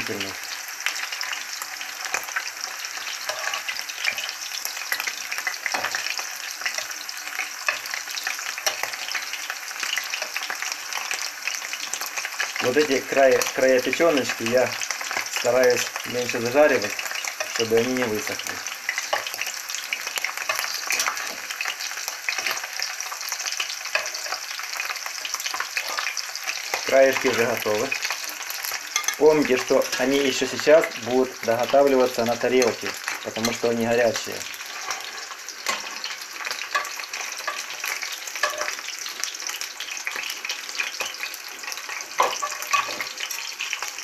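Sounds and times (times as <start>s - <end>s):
liver sizzling in oil: 0.0s - 44.0s
metal spatula on skillet: 0.0s - 44.0s
metal spatula scraping pan: 3.2s - 4.3s, 4.9s - 6.9s, 18.9s - 27.4s, 32.2s - 38.8s, 40.8s - 43.4s.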